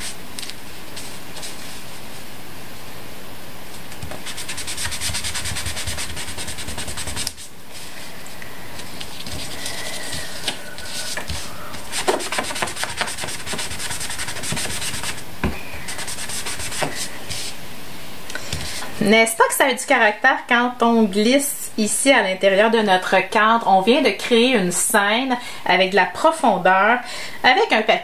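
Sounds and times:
ink sponge rubbing on cardstock: 4.2 - 7.9, 9.1 - 15.2, 15.8 - 17.6.

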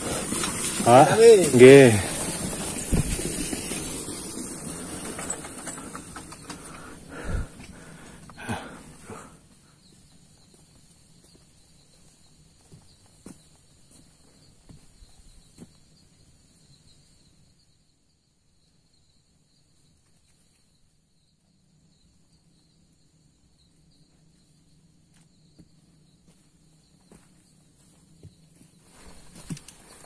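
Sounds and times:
footsteps on dirt: 0.0 - 4.0, 9.9 - 15.8, 25.1 - 30.0
high insect drone: 0.0 - 30.0.

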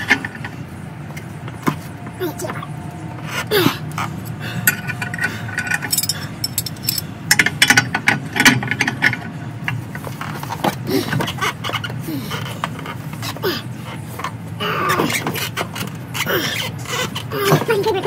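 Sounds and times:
metal clicks and clinks: 4.7 - 7.8.

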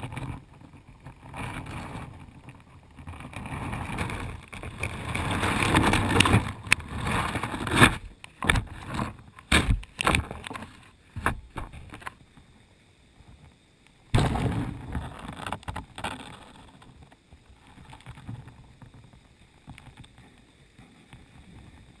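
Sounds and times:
water rushing: 0.0 - 22.0
knocks and bumps on rocks: 3.1 - 12.2.

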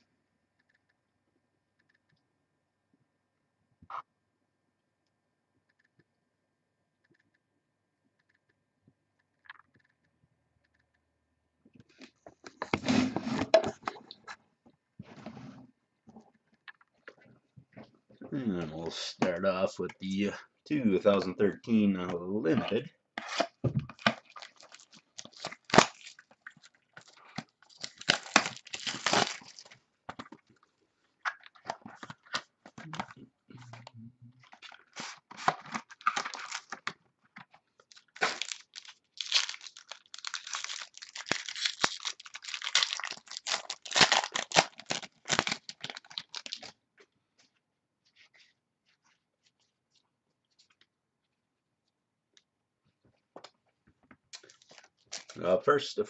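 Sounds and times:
packaging torn and crinkled: 24.0 - 29.8, 34.4 - 37.0, 37.8 - 46.8, 54.3 - 55.4.

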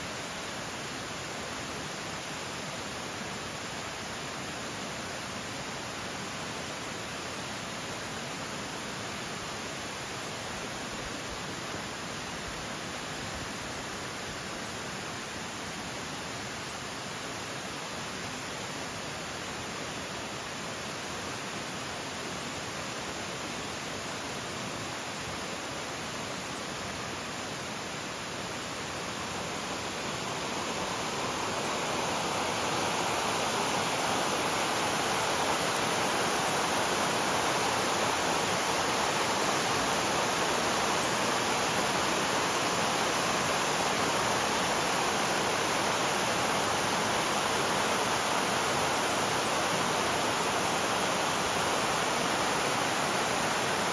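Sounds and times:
river rushing over stones: 0.0 - 53.9.

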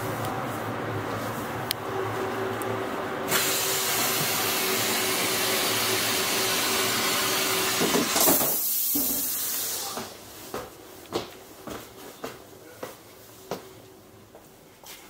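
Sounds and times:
railway coach hum and whine: 0.0 - 8.1
loud hiss of air: 3.3 - 10.1.

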